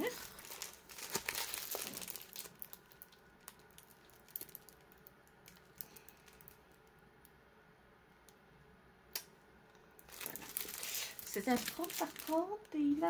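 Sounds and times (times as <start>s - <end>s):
plastic crinkling: 0.0s - 7.0s, 10.0s - 13.0s.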